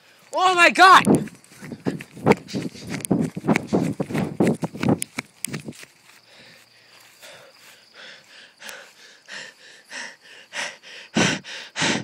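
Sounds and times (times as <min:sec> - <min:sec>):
person breathing hard: 0:01.4 - 0:04.4, 0:06.0 - 0:12.0.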